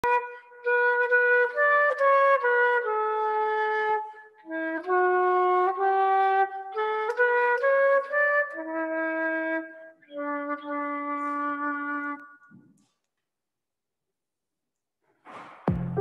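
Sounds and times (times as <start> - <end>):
slow wind instrument melody: 0.0 - 12.6.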